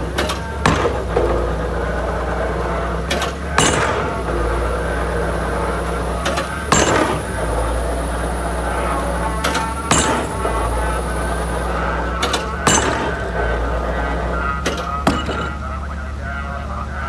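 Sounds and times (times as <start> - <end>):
drop hammer striking concrete pile: 0.0 - 4.8, 6.2 - 7.8, 8.9 - 11.1, 12.2 - 13.6, 14.6 - 15.7
excavator engine running: 0.0 - 17.0.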